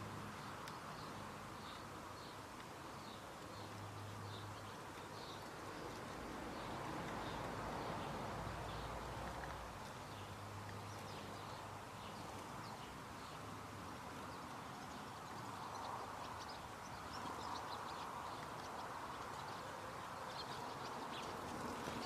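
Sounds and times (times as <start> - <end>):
low outdoor background hum: 0.0 - 22.0
bird ticks: 0.3 - 13.4, 14.3 - 22.0.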